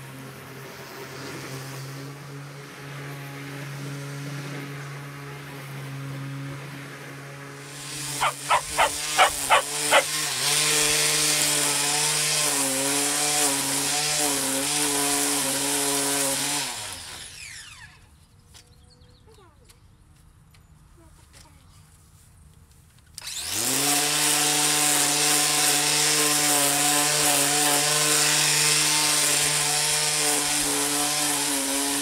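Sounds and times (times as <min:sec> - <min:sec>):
electric lawn mower humming: 0:00.0 - 0:18.1, 0:23.2 - 0:32.0
string trimmer whining: 0:07.6 - 0:17.9, 0:23.2 - 0:32.0
string trimmer ticking: 0:08.2 - 0:10.1.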